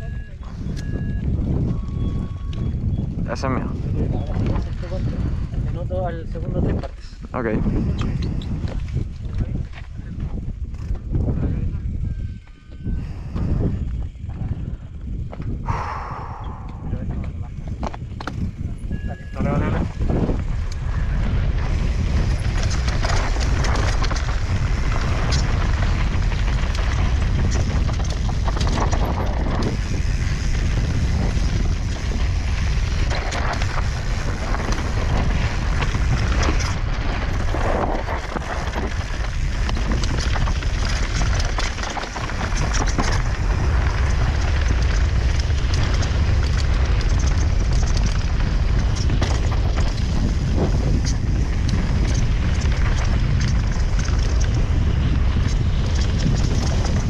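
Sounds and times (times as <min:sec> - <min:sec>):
bike rattling over bumps: 0:00.0 - 0:57.0
wind buffeting microphone: 0:00.0 - 0:57.0
bike tyres skidding on dirt: 0:18.0 - 0:57.0.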